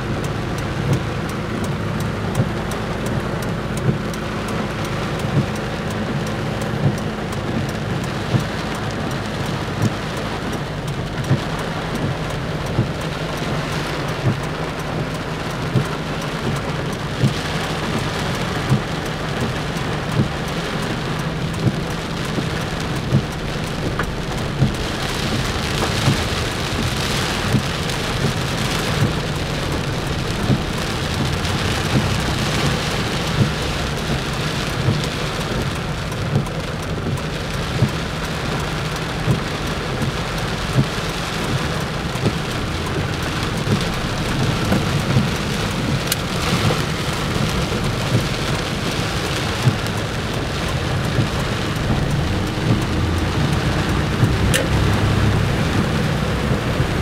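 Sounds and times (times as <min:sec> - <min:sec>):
heavy rain on car roof: 0:00.0 - 0:57.0
low steady rumble: 0:00.0 - 0:57.0.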